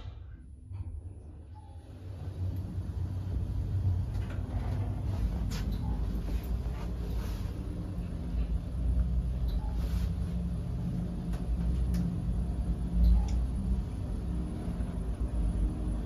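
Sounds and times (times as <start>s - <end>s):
elevator low rumble: 0.0s - 16.0s.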